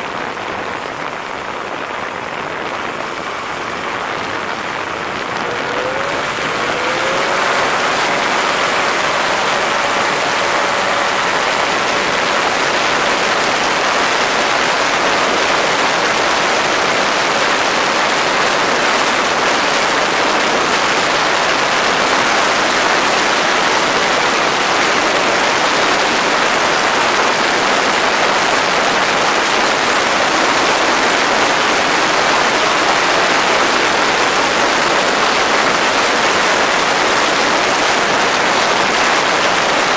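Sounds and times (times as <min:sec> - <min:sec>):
microlight engine at full throttle: 0:00.0 - 0:39.9
propeller wash rushing: 0:00.0 - 0:39.9.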